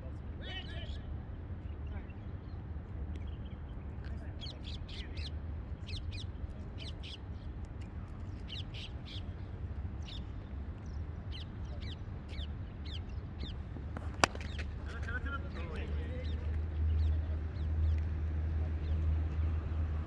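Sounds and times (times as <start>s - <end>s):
birds chirping: 3.2s - 18.0s
cricket bat striking ball: 13.7s - 15.2s.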